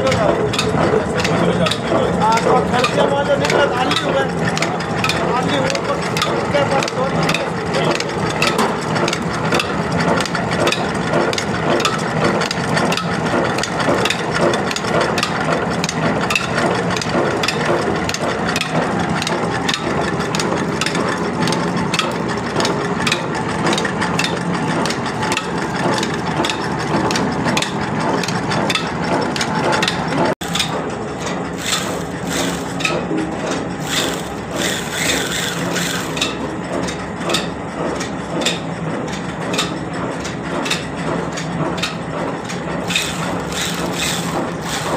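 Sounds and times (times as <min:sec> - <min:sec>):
mechanical rattle: 0:00.0 - 0:37.5, 0:41.7 - 0:44.9
oil expeller clattering: 0:00.0 - 0:44.9
mechanical drive hum: 0:30.4 - 0:36.5, 0:42.8 - 0:44.9.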